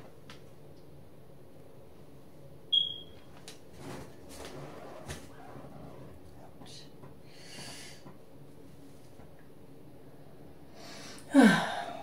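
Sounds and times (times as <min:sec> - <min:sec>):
faint breath: 0:07.2 - 0:08.1.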